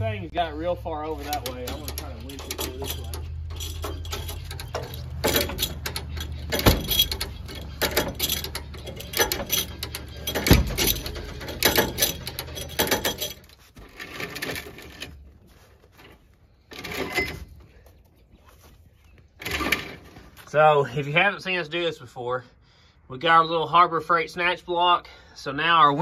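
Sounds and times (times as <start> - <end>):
metal cable clanks and clicks: 1.1 - 18.3, 19.4 - 20.4.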